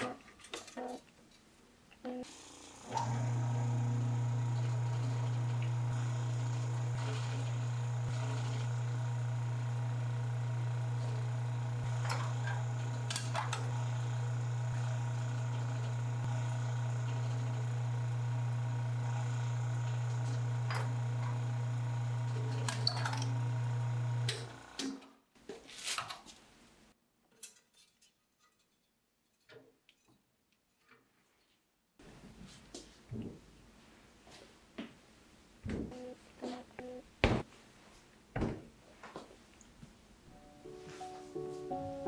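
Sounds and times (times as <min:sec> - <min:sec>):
pug mill humming: 0:02.2 - 0:24.8.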